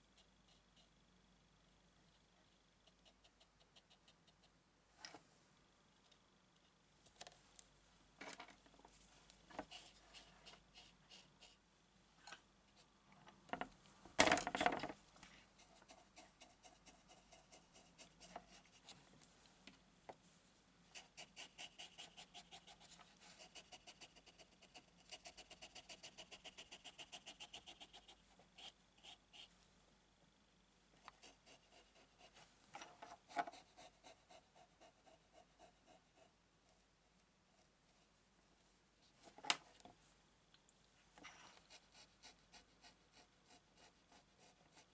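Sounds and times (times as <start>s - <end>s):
drawing tool scratching on paper: 20.9s - 29.5s.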